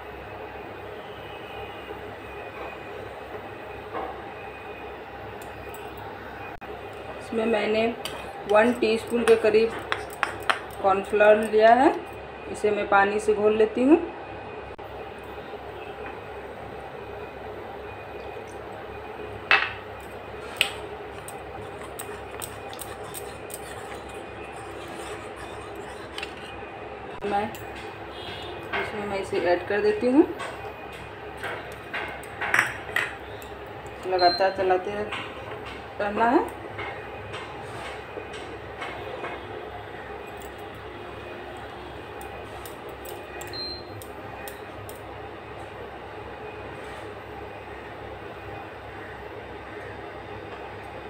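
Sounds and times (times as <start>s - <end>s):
induction cooktop hum: 0.0s - 51.0s
steady hum: 14.0s - 36.0s
spoon clinking against ceramic bowl: 21.1s - 26.5s
wooden spatula scraping pan: 21.1s - 26.6s.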